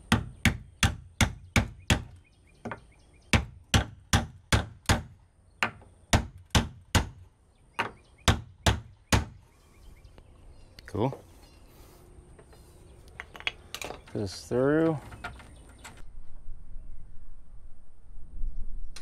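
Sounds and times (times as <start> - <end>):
hammer knocking on wooden block: 0.1 - 7.2, 7.8 - 9.4.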